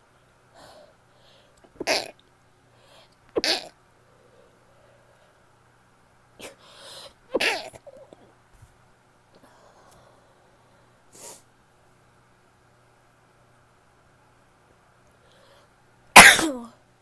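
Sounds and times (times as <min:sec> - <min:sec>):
intake of breath: 0:06.6 - 0:07.2
woman sneezing: 0:16.2 - 0:16.7.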